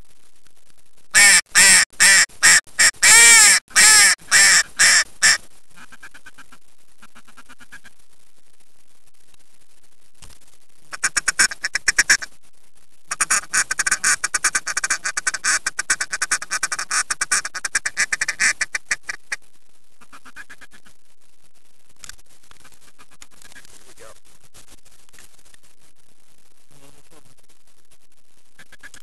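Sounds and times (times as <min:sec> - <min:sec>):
duck quacking: 0:01.2 - 0:07.9, 0:10.9 - 0:12.3, 0:13.1 - 0:19.4.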